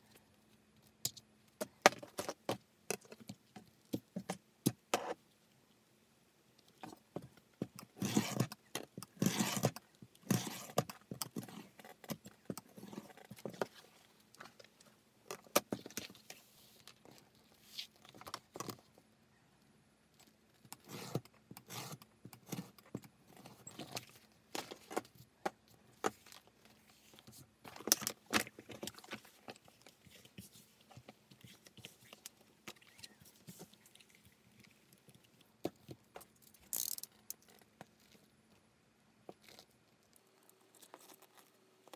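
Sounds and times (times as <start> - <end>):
scraping along a metal ruler: 8.0 - 8.6, 9.2 - 11.6, 20.7 - 22.9.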